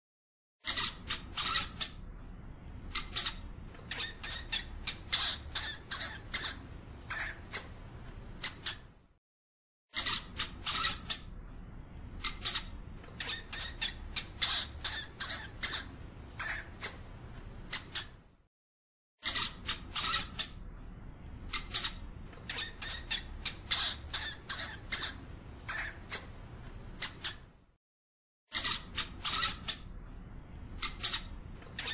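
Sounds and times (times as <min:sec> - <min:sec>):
hamster squeaking: 0:00.6 - 0:02.1, 0:02.9 - 0:07.8, 0:08.4 - 0:08.9, 0:09.9 - 0:11.3, 0:12.2 - 0:17.1, 0:17.7 - 0:18.2, 0:19.2 - 0:20.6, 0:21.5 - 0:26.4, 0:27.0 - 0:27.5, 0:28.5 - 0:29.9, 0:30.8 - 0:31.9.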